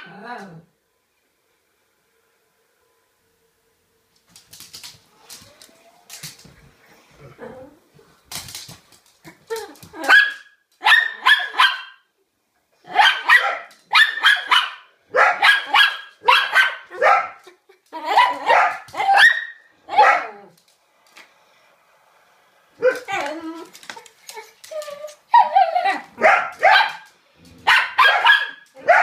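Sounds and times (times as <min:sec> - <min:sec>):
small dog barking: 0:10.0 - 0:12.0, 0:12.9 - 0:17.4, 0:18.2 - 0:20.5, 0:26.2 - 0:29.0.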